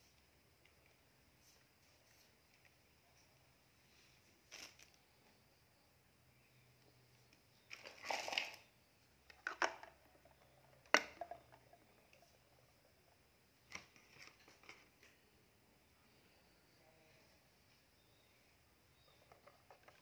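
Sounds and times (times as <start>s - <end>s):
plastic toys clattering in water: 7.6s - 15.0s, 19.1s - 20.0s.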